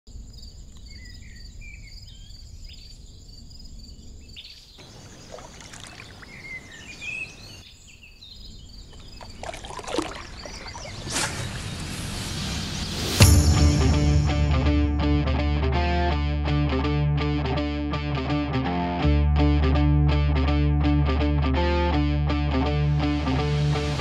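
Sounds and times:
songbirds chirping and singing: 0:03.9 - 0:11.9
hiss: 0:10.9 - 0:13.2
low rumble: 0:10.9 - 0:15.9.

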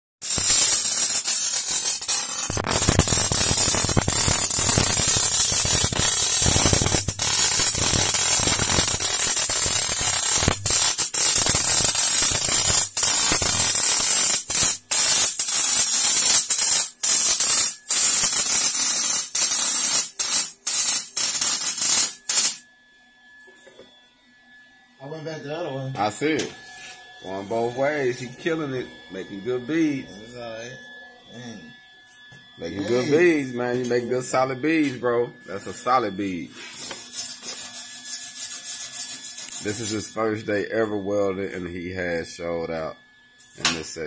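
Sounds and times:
welding arc crackling and hissing: 0:00.2 - 0:22.6, 0:35.9 - 0:40.4.

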